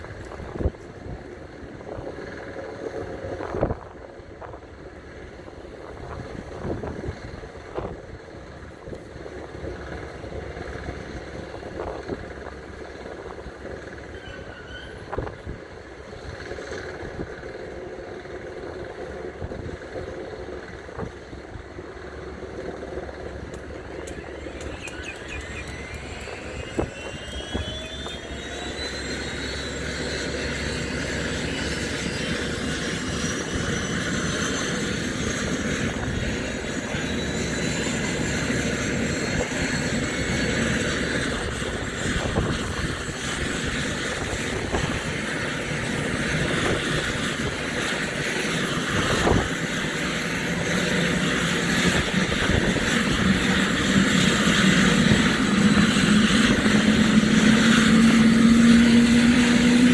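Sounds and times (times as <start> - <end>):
helicopter engine starting up: 0.0 - 59.9.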